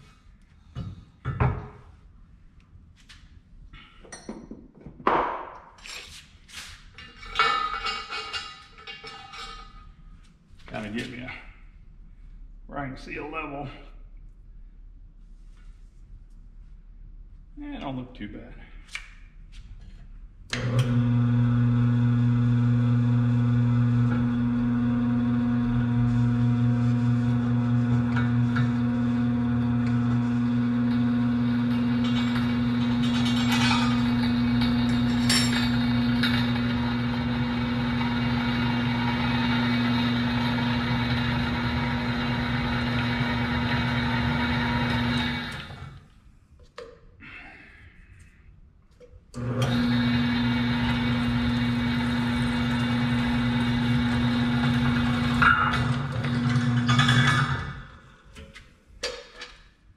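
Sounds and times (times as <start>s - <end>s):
drill press motor humming: 20.5s - 46.0s, 49.4s - 57.7s.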